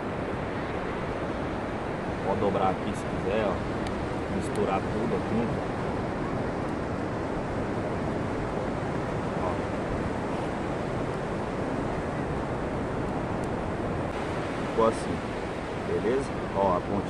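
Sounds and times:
ocean surf breaking: 0:00.0 - 0:17.0
wind rumbling on microphone: 0:00.0 - 0:17.0.

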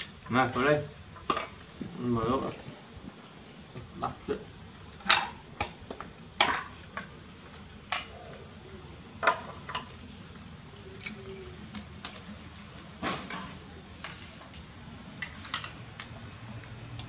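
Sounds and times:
utensils and dishes clinking: 0:15.2 - 0:15.9.

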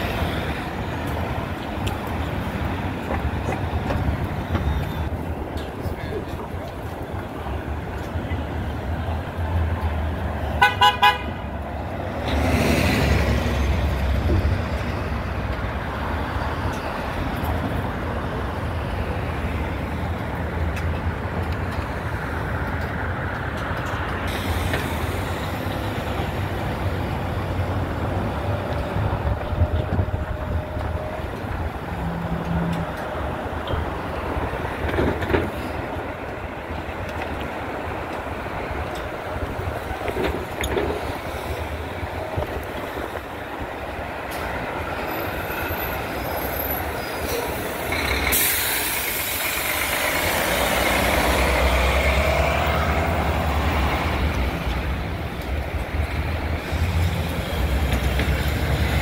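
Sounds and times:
city street traffic: 0:00.0 - 0:59.0
vehicle horn honking: 0:10.6 - 0:11.4
vehicle passing close by: 0:12.0 - 0:14.7, 0:48.9 - 0:55.0.

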